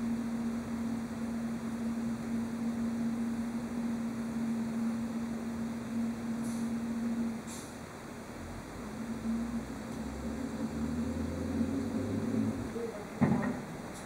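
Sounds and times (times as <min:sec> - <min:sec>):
diesel engine hum: 0:00.0 - 0:14.0
hydraulic pump whine: 0:00.0 - 0:14.0
high hiss: 0:03.9 - 0:12.7.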